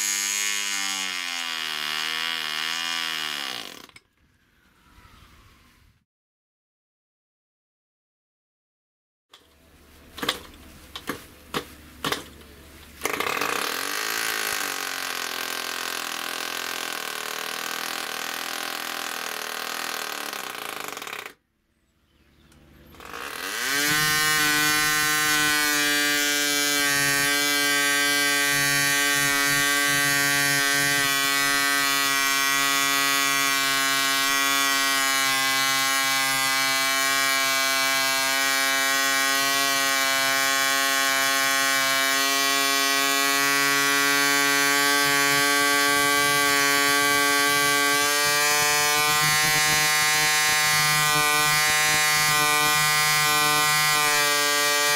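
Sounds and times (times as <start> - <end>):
model aircraft engine running: 22.9 - 54.9.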